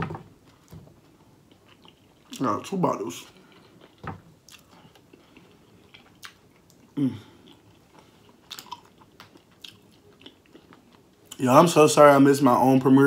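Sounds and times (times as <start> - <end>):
chewing mouth sounds: 3.4 - 11.4
person humming: 7.0 - 7.4.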